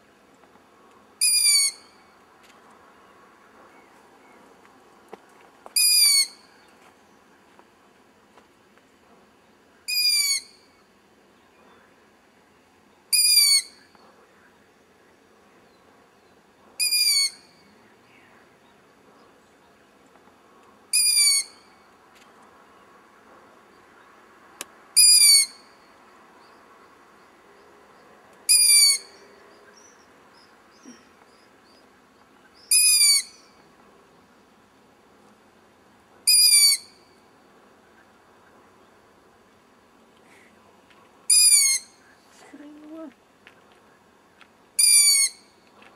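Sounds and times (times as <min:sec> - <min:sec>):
owl chick screaming: 0:01.2 - 0:01.8, 0:05.8 - 0:06.4, 0:13.2 - 0:13.7, 0:16.8 - 0:17.4, 0:21.0 - 0:21.5, 0:25.0 - 0:25.6, 0:28.5 - 0:29.1, 0:32.7 - 0:33.4, 0:36.3 - 0:36.9, 0:41.3 - 0:41.9, 0:44.8 - 0:45.4.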